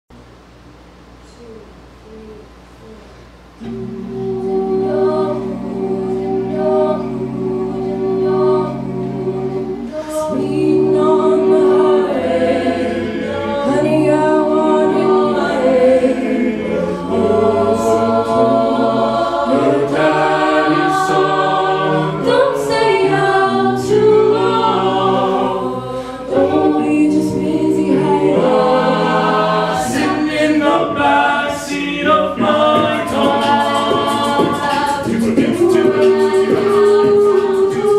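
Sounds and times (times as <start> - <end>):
backing vocal chords: 1.4 - 37.9
vocal percussion beat: 26.2 - 37.9.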